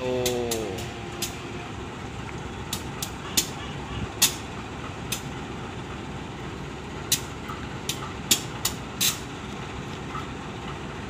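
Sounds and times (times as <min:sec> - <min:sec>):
diesel locomotive engine rumbling: 0:00.0 - 0:11.0
sharp clicks and knocks: 0:07.1 - 0:09.3.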